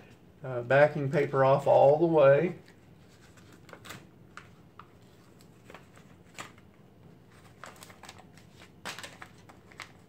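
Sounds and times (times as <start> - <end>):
paper rustling and crackling: 2.6 - 10.0.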